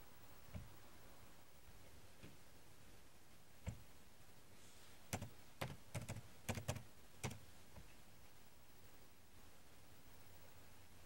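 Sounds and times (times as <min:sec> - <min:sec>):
keyboard typing: 0:05.1 - 0:07.4.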